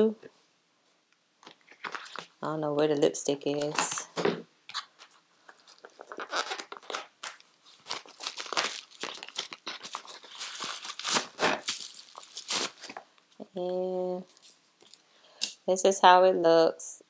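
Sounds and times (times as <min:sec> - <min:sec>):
plastic wrapping crinkling: 0:01.4 - 0:02.4, 0:03.5 - 0:13.5, 0:14.2 - 0:15.0.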